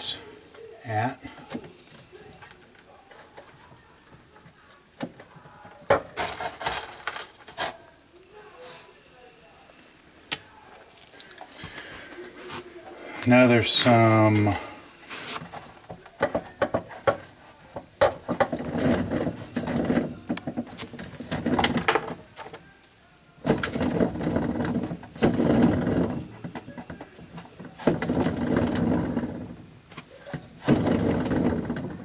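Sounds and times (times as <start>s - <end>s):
pump impeller grinding and scraping: 11.3s - 17.2s, 18.0s - 22.2s, 23.4s - 32.0s.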